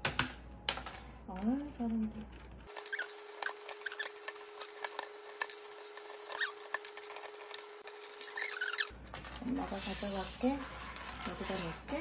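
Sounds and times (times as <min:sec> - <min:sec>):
parrot chirping: 0:02.7 - 0:05.3, 0:06.0 - 0:07.2, 0:08.0 - 0:08.9.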